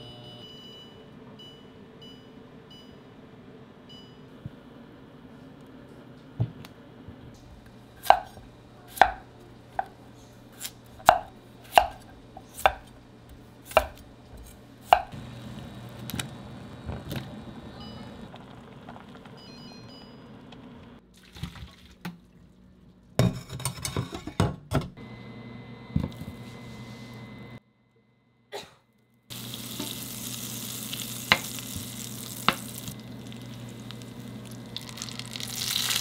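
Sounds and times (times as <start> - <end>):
steady hum: 0.0 - 21.0, 29.3 - 36.0
knife chopping on cutting board: 8.0 - 10.0, 10.6 - 13.0, 13.7 - 15.1
utensils and dishes clattering: 23.2 - 24.6.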